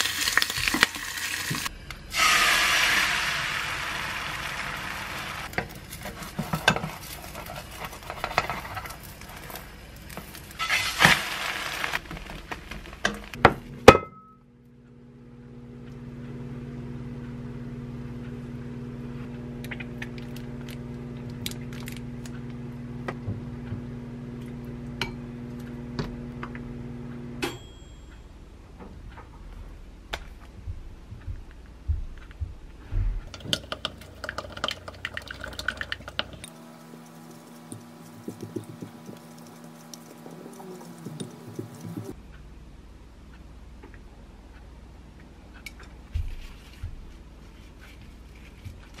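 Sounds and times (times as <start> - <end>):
egg cooking in a frying pan: 0.0 - 13.4, 33.3 - 42.2
background hum: 0.0 - 49.0.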